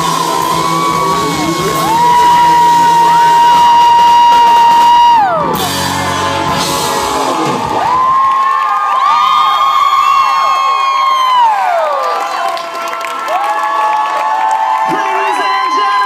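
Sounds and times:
live rock band playing: 0.0 - 8.3
crowd whooping: 0.0 - 16.0.

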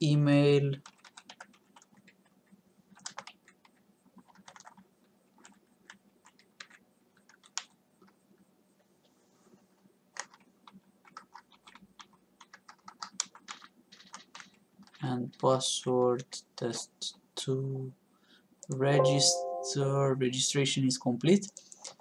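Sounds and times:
typing on computer keyboard: 0.8 - 8.2, 10.1 - 15.5.

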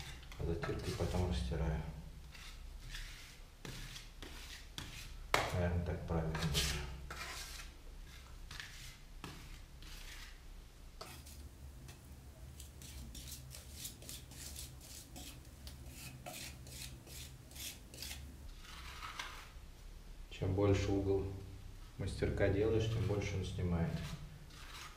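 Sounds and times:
trowel scraping plaster on wall: 0.0 - 1.5, 2.2 - 5.6, 6.3 - 10.4, 11.0 - 11.5, 12.6 - 19.6, 22.8 - 24.9.

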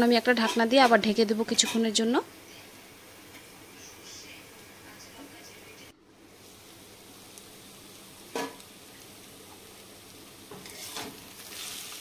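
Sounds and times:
vegetables sizzling in a pan: 0.0 - 12.0
metal spatula scraping a pan: 10.5 - 12.0.

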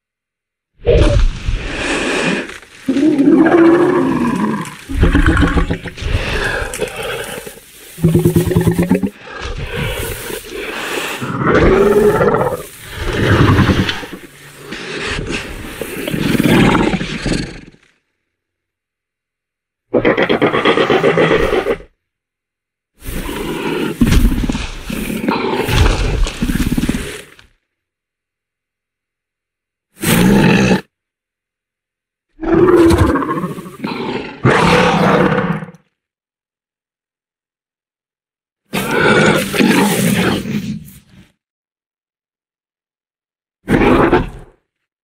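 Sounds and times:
creature growling: 0.8 - 17.8, 20.0 - 21.9, 23.0 - 27.4, 30.0 - 30.9, 32.4 - 35.8, 38.7 - 40.8, 43.7 - 44.6
creature roaring: 0.8 - 17.8, 20.0 - 21.9, 23.0 - 27.2, 30.0 - 30.9, 32.4 - 35.8, 38.7 - 40.7, 43.7 - 44.6.

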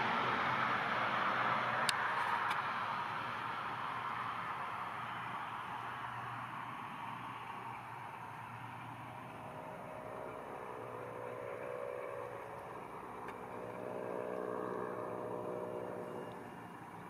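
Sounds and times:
distant turboprop engines drone: 0.0 - 17.0.

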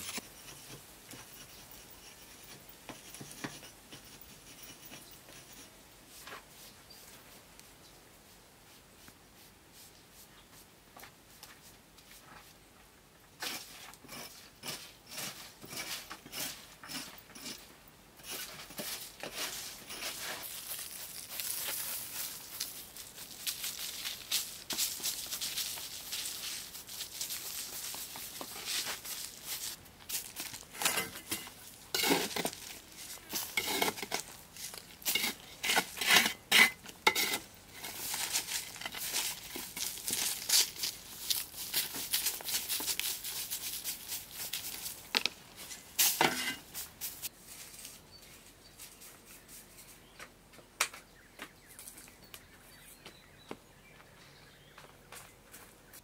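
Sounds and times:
broom sweeping dirt and leaves: 0.0 - 12.6, 13.4 - 50.1.

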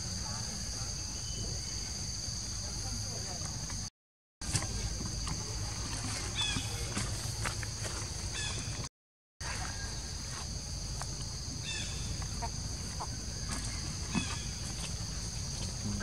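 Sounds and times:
insect drone: 0.0 - 16.0.

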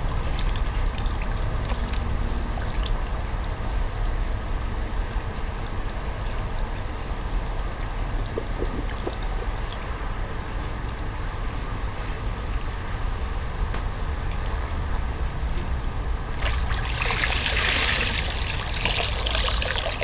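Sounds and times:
steady low rumble: 0.0 - 20.0
water sloshing in pool: 7.8 - 10.3, 16.4 - 20.0.

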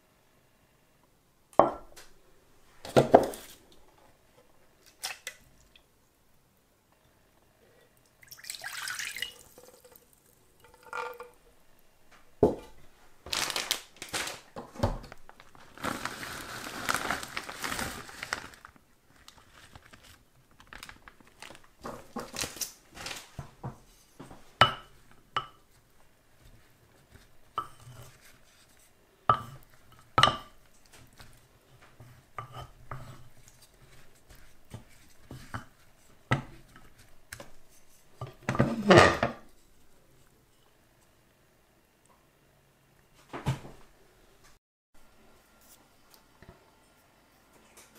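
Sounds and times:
liquid pouring into a bowl: 8.0 - 11.4
wooden spoon in bowl: 24.6 - 39.8.

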